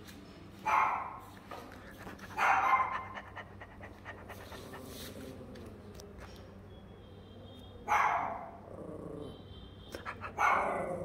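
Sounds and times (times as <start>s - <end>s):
dog making breathy sounds: 1.8s - 5.4s.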